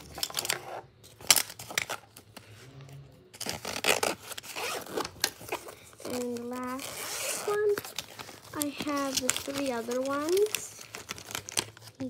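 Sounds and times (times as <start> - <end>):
zipper pulled closed: 3.4 - 5.6, 6.8 - 7.8.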